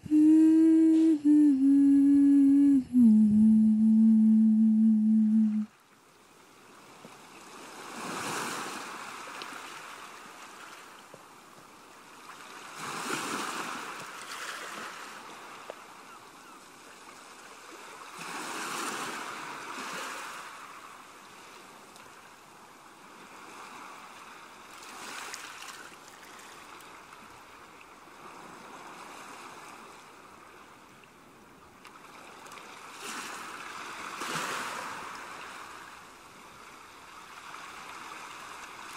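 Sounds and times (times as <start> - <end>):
waves washing onto shore: 5.6 - 16.1, 16.8 - 31.2, 31.8 - 38.9.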